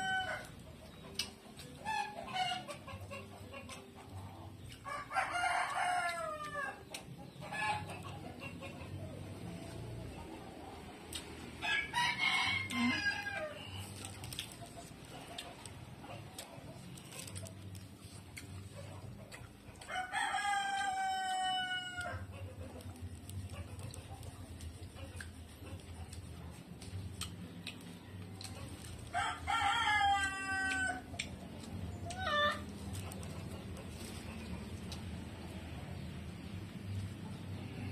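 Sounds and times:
rooster crowing: 0.0 - 0.5, 11.6 - 13.8, 19.9 - 22.3, 29.1 - 31.1.

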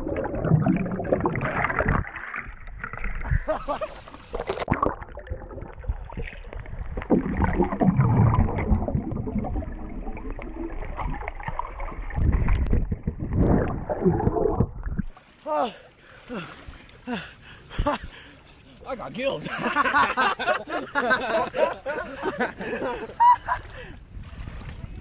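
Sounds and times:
muffled underwater bubbling: 0.0 - 15.2.

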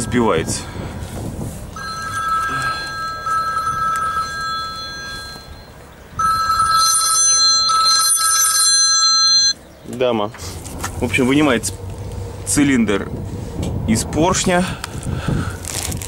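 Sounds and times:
phone ringing with trilling ringtone: 0.0 - 9.6.

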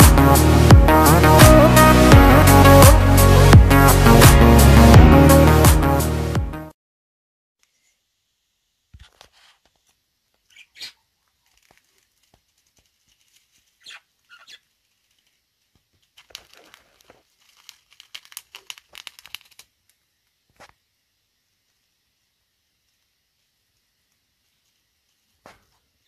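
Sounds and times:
paper crinkling and rustling: 11.3 - 13.9, 14.8 - 20.0
bird pecking at paper: 14.9 - 19.7.

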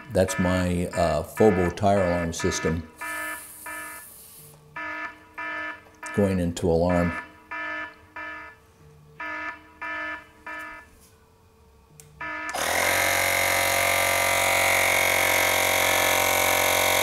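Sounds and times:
short alarm beeps: 0.0 - 4.1.

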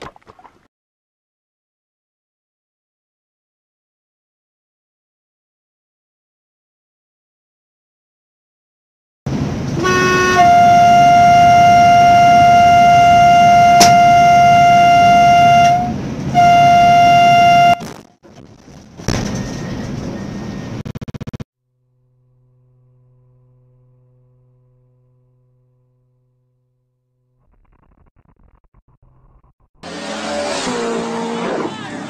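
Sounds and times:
vehicle horn: 9.8 - 17.8, 29.8 - 32.0.

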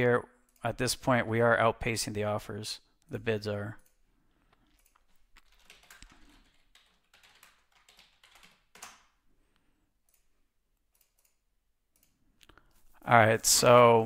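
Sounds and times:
keyboard typing: 3.8 - 9.2.

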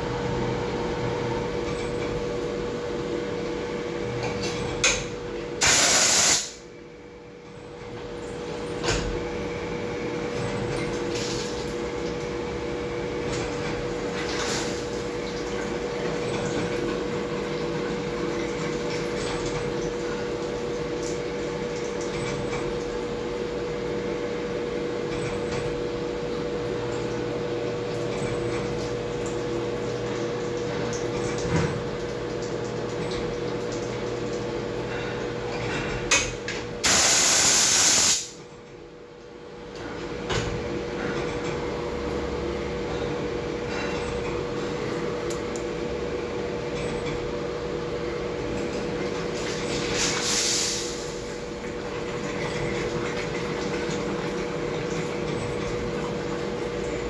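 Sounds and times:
coolant spray hissing: 5.6 - 6.6, 36.8 - 38.4, 50.1 - 51.2.

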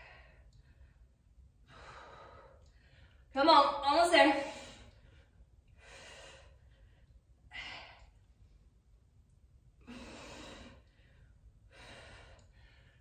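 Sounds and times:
woman breathing hard: 0.0 - 3.3, 4.4 - 8.3, 9.8 - 13.0.

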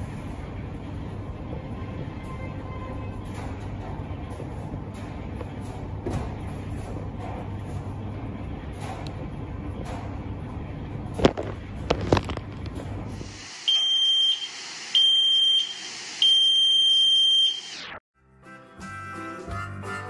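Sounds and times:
tumble dryer running: 0.0 - 17.9
hiss: 13.2 - 16.8
shrill electronic alarm beeps: 13.6 - 18.0
harmonica music: 18.2 - 20.0.

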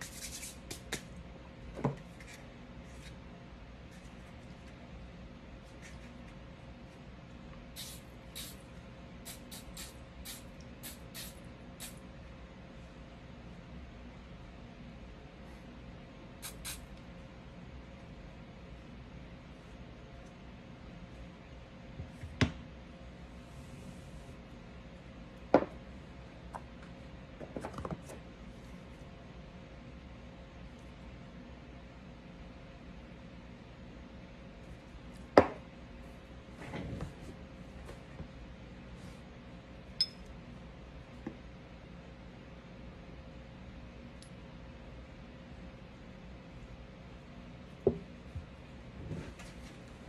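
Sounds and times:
aerosol spray can hissing: 7.8 - 8.6, 9.3 - 12.0, 16.4 - 16.8.

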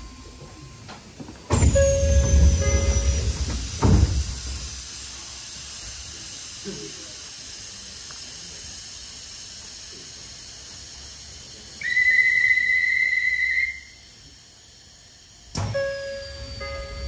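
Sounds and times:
faint hiss of stopped train: 0.0 - 17.0
long whistle blast: 11.8 - 14.1.

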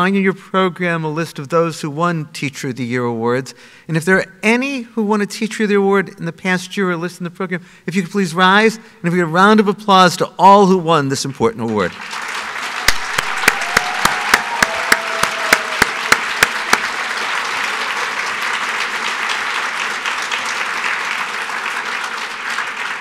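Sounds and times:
audience applauding: 11.7 - 23.0
hands clapping close to microphone: 11.7 - 23.0.

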